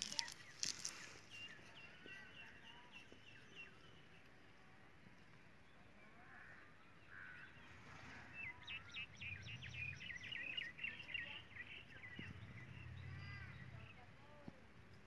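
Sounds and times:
bird calls: 0.0 - 3.8
faint outdoor background noise: 0.0 - 15.0
bird chirping: 8.4 - 14.0.

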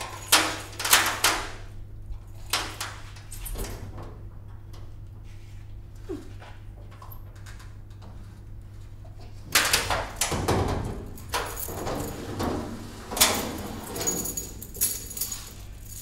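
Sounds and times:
metal sliding door rolling: 9.6 - 15.5.

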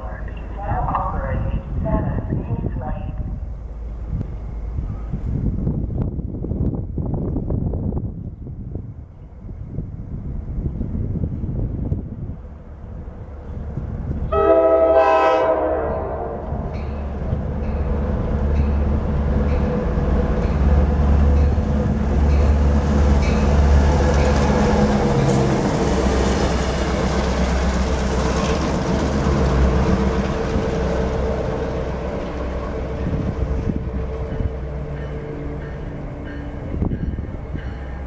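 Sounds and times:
diesel locomotive engines running: 0.0 - 38.0
train air horn blast: 14.3 - 16.6.

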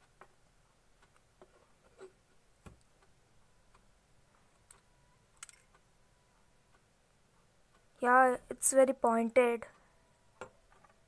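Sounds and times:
metal compass clicks and taps: 4.5 - 5.9.

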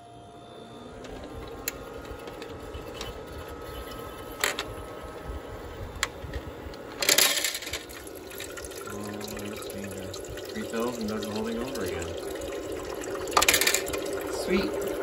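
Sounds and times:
small motor humming: 0.0 - 15.0
ice cubes clattering into basket: 13.3 - 14.5.

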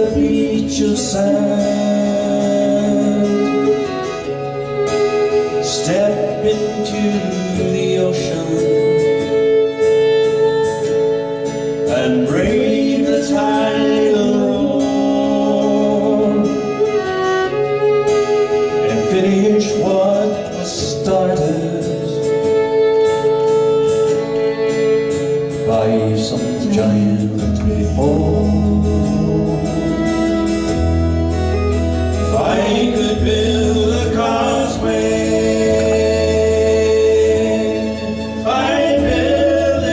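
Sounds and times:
man singing: 0.0 - 4.4, 5.5 - 9.6, 11.8 - 17.2, 18.7 - 22.4, 25.6 - 30.6, 32.2 - 39.9
bowed violin: 0.0 - 39.9
low bass notes: 25.7 - 39.9.

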